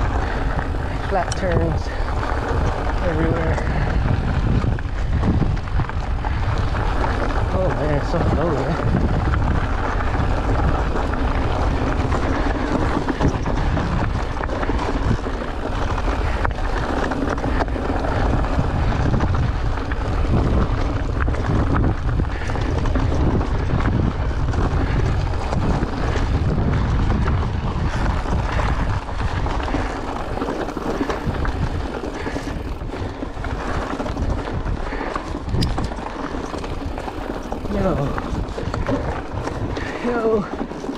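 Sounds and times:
wind buffeting microphone: 0.0s - 40.9s
bike knocks and rattles: 8.3s - 40.9s.

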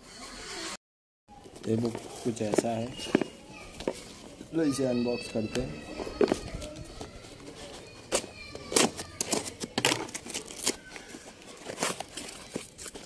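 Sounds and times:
cardboard ripping and scraping: 7.6s - 13.0s.

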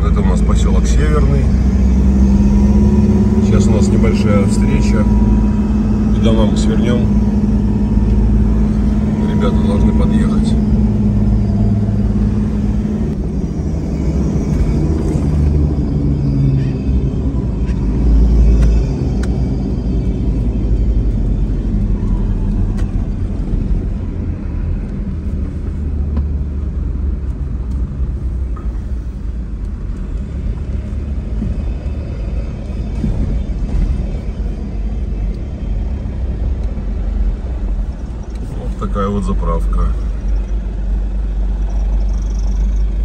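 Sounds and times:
car engine rumble: 0.0s - 43.0s
road noise: 0.0s - 43.0s.

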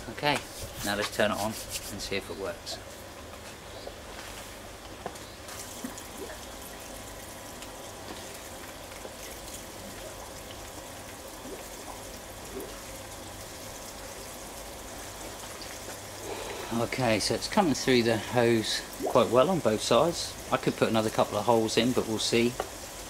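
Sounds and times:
water spraying and trickling: 5.5s - 23.0s.

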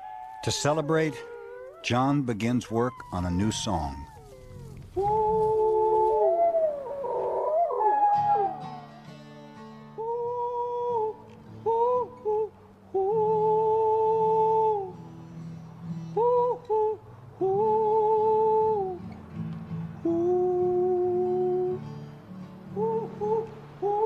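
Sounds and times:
acoustic guitar chords: 8.1s - 24.0s
person humming a slow tune: 9.9s - 19.2s, 20.0s - 22.0s, 22.7s - 24.0s.

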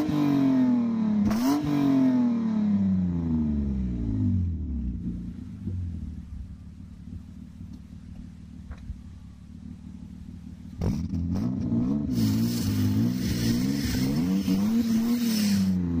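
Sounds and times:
car engine idling and revving: 0.0s - 16.0s
loud exhaust hiss: 12.0s - 16.0s.

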